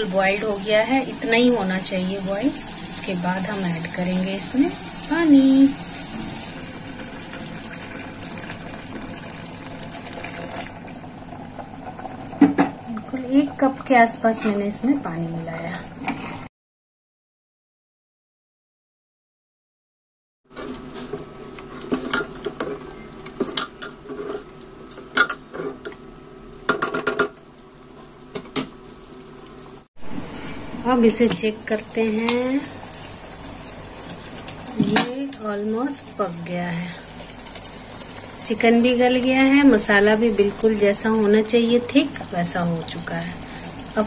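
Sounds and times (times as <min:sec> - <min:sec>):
hot water pouring: 0:00.0 - 0:16.5, 0:26.8 - 0:30.5, 0:31.3 - 0:44.0
water boiling hard: 0:00.0 - 0:16.5, 0:25.1 - 0:44.0.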